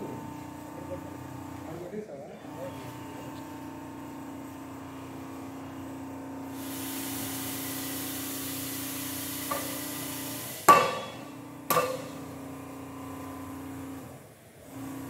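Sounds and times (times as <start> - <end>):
factory machinery hum: 0.0 - 15.0
loud sharp metal clank: 10.6 - 12.4.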